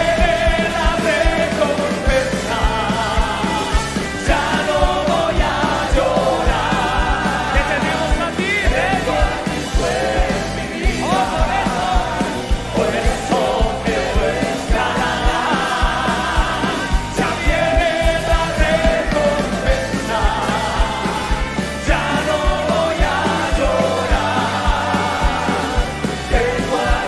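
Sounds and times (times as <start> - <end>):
choir singing together: 0.0 - 27.0
male lead voices singing: 0.0 - 27.0
quick drum beat: 0.0 - 27.0.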